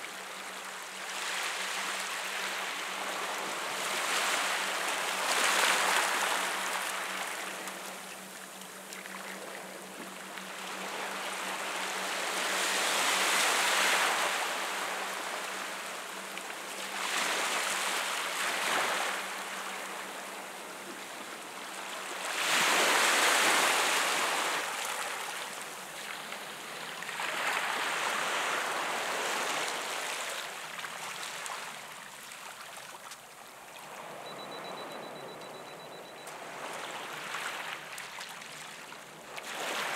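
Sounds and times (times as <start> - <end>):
sea waves washing over rocks: 2.3 - 7.8.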